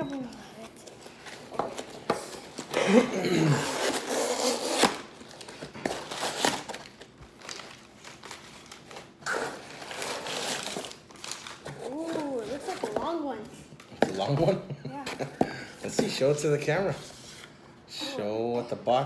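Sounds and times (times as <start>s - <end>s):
packing paper rustling and crinkling: 3.6s - 13.2s.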